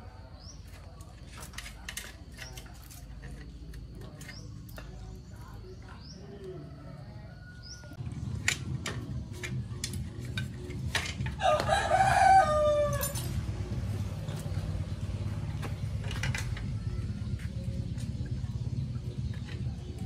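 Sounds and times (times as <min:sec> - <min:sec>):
rooster crowing: 0:06.4 - 0:08.0, 0:11.4 - 0:13.3
metallic clicks of bicycle parts: 0:08.3 - 0:11.4, 0:15.6 - 0:16.7.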